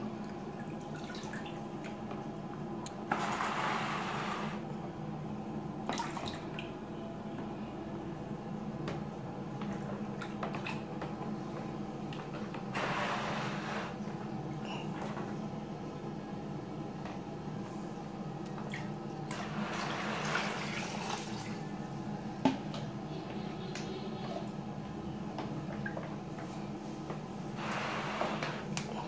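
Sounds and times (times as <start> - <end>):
water splashing in a basin: 0.3 - 2.0, 5.8 - 6.7, 18.5 - 21.7.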